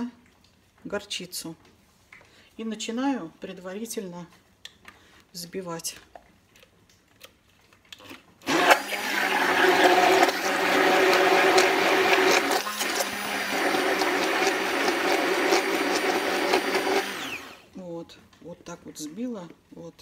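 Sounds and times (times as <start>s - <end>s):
immersion blender whirring: 8.5s - 17.7s.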